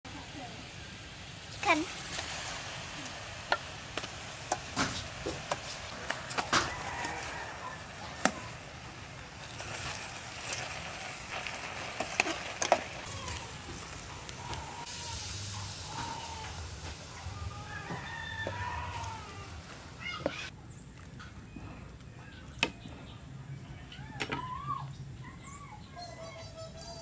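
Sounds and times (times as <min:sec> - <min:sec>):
hiss: 0:00.1 - 0:20.5.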